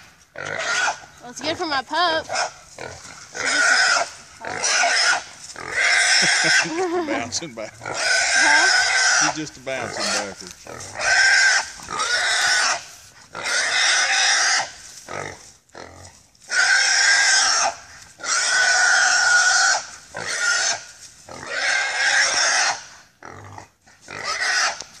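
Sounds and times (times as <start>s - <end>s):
hog squealing: 3.3s - 12.8s.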